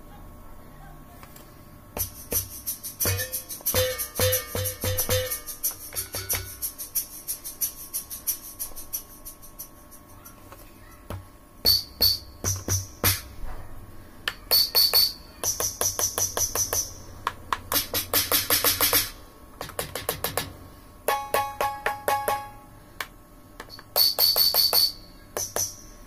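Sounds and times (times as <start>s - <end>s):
electronic drum pad hits: 2.0s - 6.7s, 11.1s - 13.6s, 17.7s - 20.5s, 21.1s - 22.6s.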